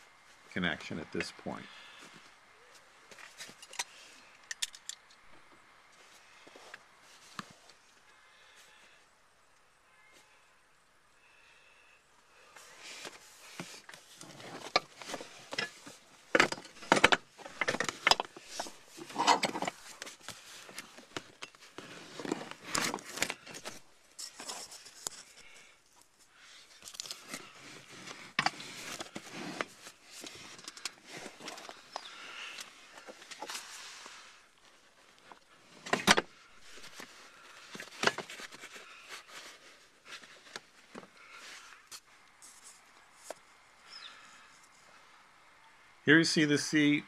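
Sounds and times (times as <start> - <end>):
handling clicks and rustles: 2.7 - 7.8, 12.5 - 43.5.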